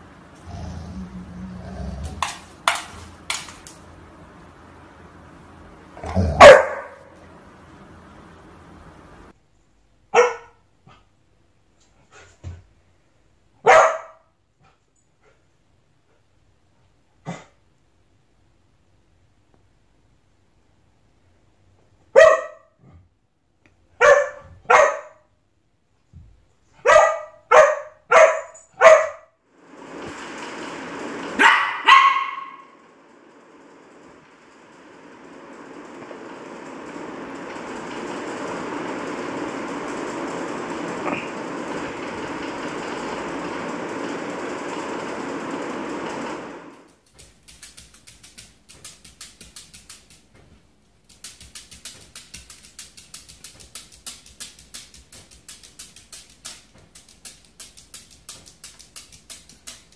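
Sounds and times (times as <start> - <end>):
low rumble: 0.0 - 6.2
dog barking: 6.1 - 7.1, 10.1 - 10.6, 13.6 - 14.3, 22.1 - 22.8, 24.0 - 25.3, 26.8 - 29.3, 31.4 - 32.8.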